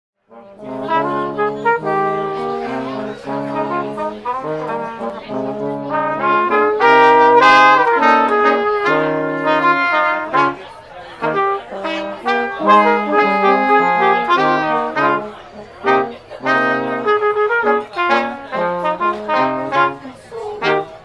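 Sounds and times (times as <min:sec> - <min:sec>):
brass quartet playing chords: 0:00.2 - 0:21.0.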